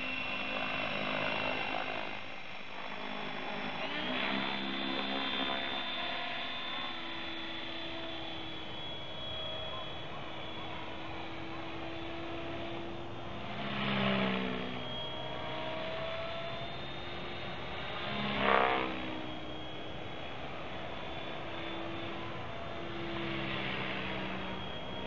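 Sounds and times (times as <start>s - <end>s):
model helicopter motor whine: 0.0s - 25.0s.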